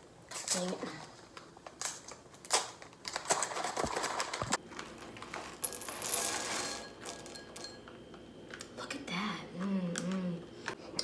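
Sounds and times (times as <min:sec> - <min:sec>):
foil snack packet crinkling: 0:00.3 - 0:05.6.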